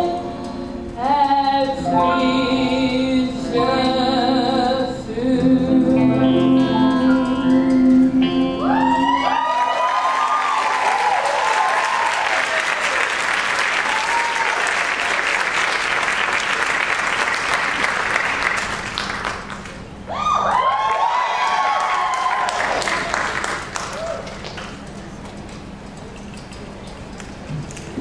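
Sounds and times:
guitar and piano chord ringing: 1.8 - 8.7
audience cheering and whooping: 8.6 - 15.8, 20.1 - 24.5
audience applauding: 9.3 - 19.9, 20.7 - 24.9.

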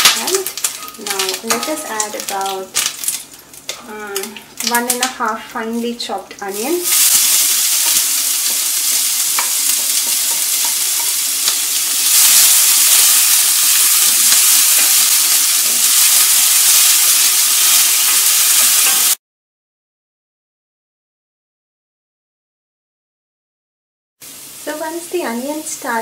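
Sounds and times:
onion sizzling in a pan: 0.0 - 19.2, 24.2 - 26.0
spatula stirring in a pan: 6.9 - 13.0.

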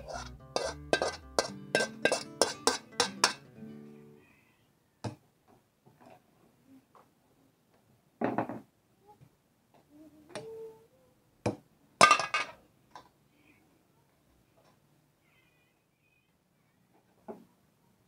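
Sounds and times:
kitchenware knocking: 0.0 - 3.4
kitchenware clattering: 0.0 - 3.5, 12.0 - 12.6.

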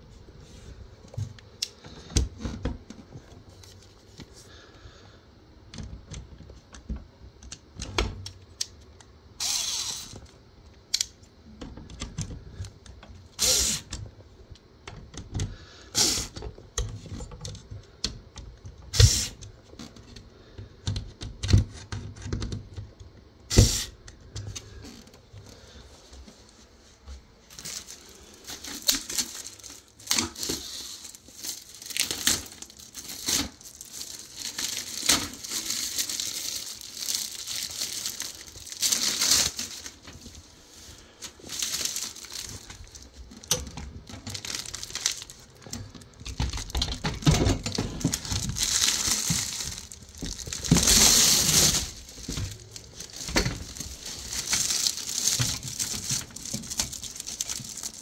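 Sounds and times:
rustling and crinkling: 0.0 - 4.7, 24.1 - 58.0.

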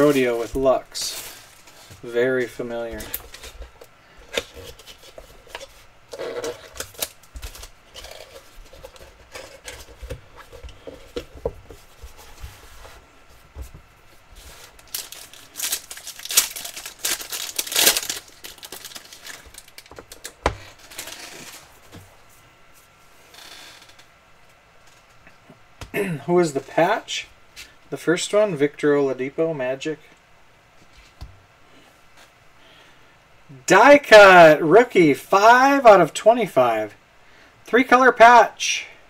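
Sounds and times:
cardboard rustling and tearing: 0.0 - 22.0.

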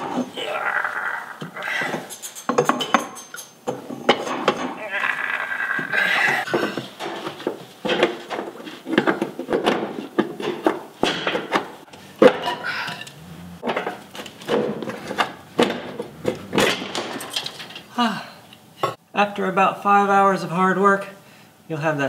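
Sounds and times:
tools knocking and clanking on metal: 1.8 - 4.8, 6.3 - 18.0.

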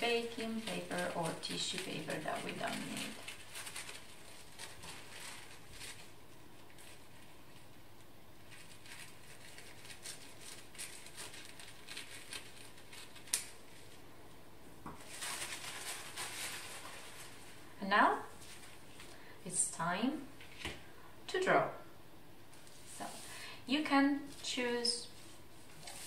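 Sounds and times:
paper rustling: 0.0 - 7.8, 8.4 - 14.0, 14.8 - 17.7, 18.3 - 19.2, 24.3 - 26.0.

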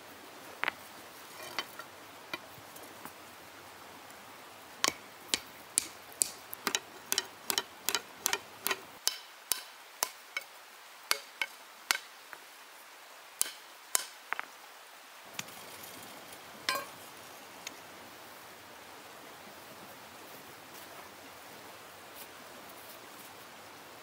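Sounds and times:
stone hammer striking iron: 4.8 - 10.5, 11.1 - 12.1, 13.4 - 14.2, 16.7 - 16.9.

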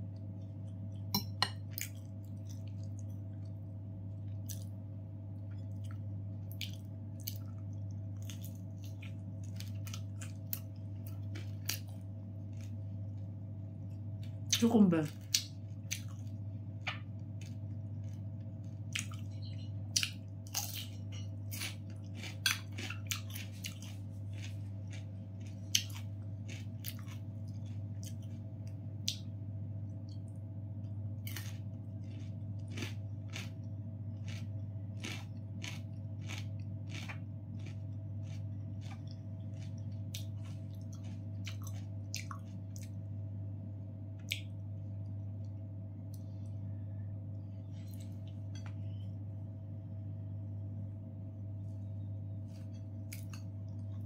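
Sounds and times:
steady low hum: 0.0 - 54.0
chewing crunchy cucumber: 0.2 - 4.8, 5.4 - 13.3, 14.0 - 29.4, 30.0 - 43.2, 52.3 - 54.0.

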